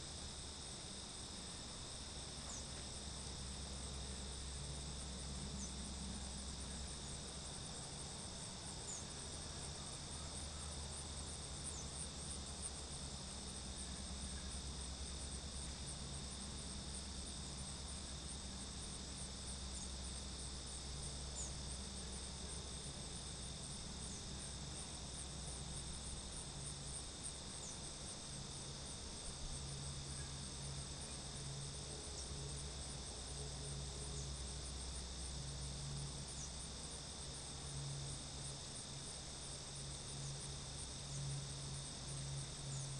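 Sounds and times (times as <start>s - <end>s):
crickets chirping: 0.0s - 42.9s
faint low hum: 0.0s - 42.9s.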